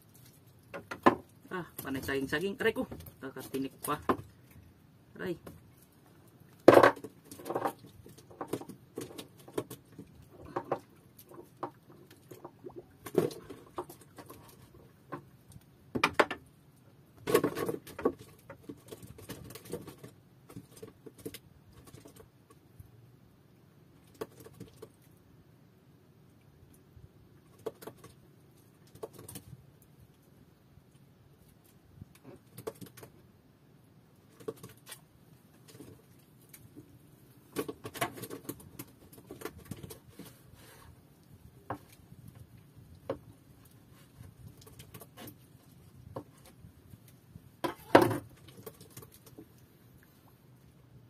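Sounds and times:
clicks and knocks in wooden boat: 0.2 - 4.6, 6.5 - 16.5, 17.2 - 22.6, 24.0 - 25.0, 27.4 - 29.6, 32.0 - 33.3, 34.2 - 40.9, 41.5 - 49.6.

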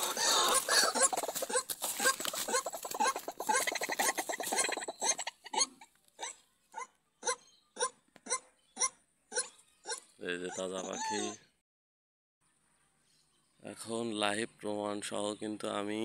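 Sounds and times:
rustling: 0.0 - 5.2
bird harsh distress calls: 0.0 - 11.6.

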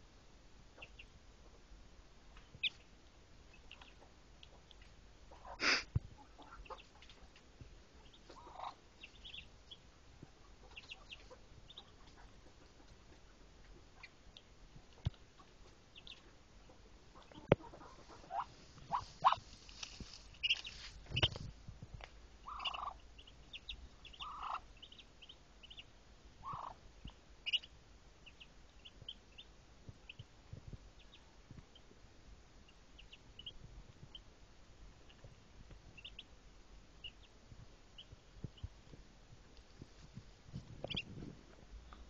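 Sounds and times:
ducklings peeping: 0.7 - 1.6, 2.3 - 34.3, 34.9 - 39.0, 40.8 - 41.3
nest straw rustling: 18.4 - 21.5
hen calling: 22.4 - 25.0.

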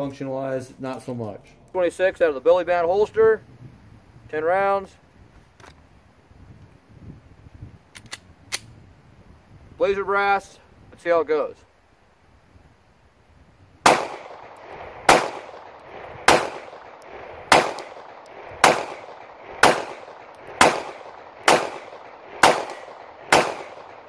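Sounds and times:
pistol shots with echo: 13.8 - 24.0.

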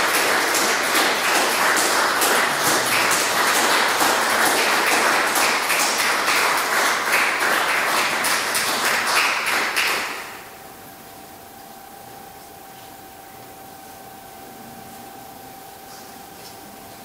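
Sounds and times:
audience applause: 0.0 - 10.4.

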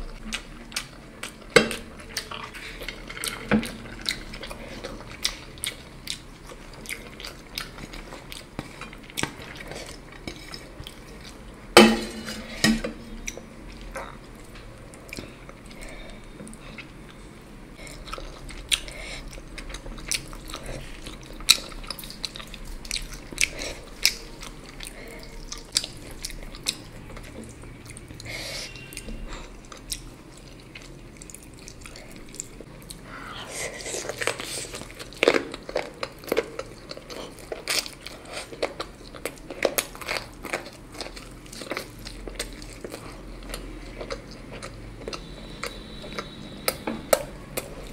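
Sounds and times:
dishes clattering: 11.8 - 13.0
dishes and utensils clinking: 11.8 - 13.1.

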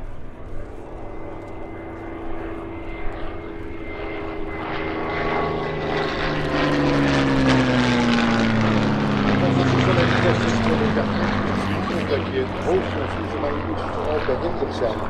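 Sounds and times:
propeller aircraft engines droning: 0.0 - 15.0.

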